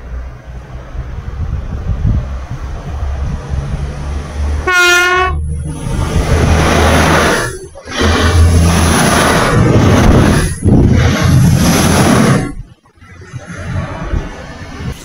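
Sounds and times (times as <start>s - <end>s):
train wheels rumbling past: 0.0s - 15.0s
train horn toot: 4.6s - 5.4s.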